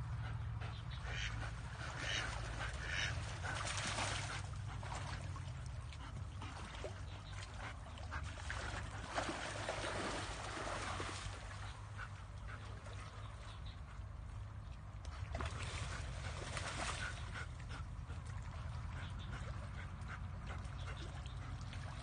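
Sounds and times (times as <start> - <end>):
steady low hum: 0.0 - 22.0
ducks quacking: 0.3 - 3.6.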